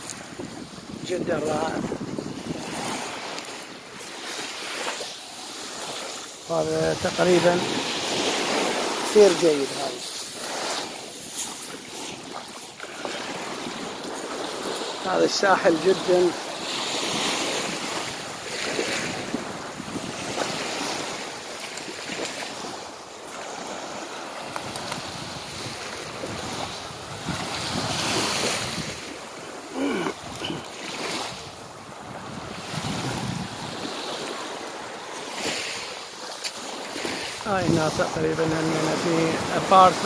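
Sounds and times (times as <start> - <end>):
waves washing over pebbles: 0.0 - 40.0
wind buffeting microphone: 0.2 - 3.2, 19.0 - 21.1, 24.4 - 29.2, 31.2 - 34.0.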